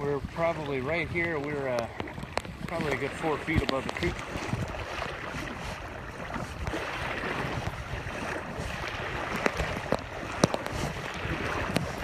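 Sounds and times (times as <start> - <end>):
floodwater rushing: 0.0 - 12.0
wind buffeting microphone: 0.0 - 12.0.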